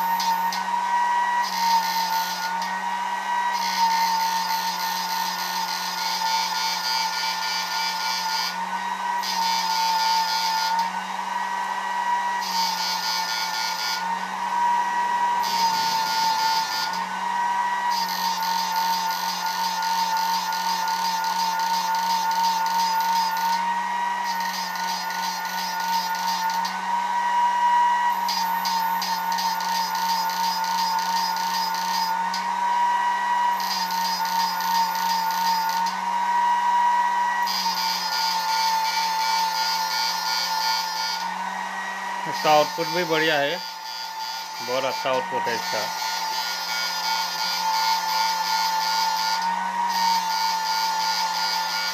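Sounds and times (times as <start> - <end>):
high electrical whine: 24.2 - 26.8, 28.1 - 32.2, 42.2 - 49.2.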